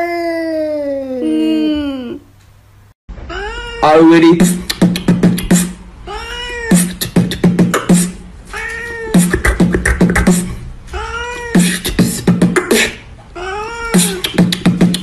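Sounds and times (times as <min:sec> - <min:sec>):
cat meowing: 0:03.3 - 0:04.2, 0:06.1 - 0:06.8, 0:08.5 - 0:09.2, 0:10.9 - 0:11.7, 0:13.4 - 0:14.3
beatboxing rhythm: 0:04.2 - 0:05.8, 0:06.7 - 0:08.2, 0:09.1 - 0:10.7, 0:11.4 - 0:13.2, 0:13.9 - 0:15.0.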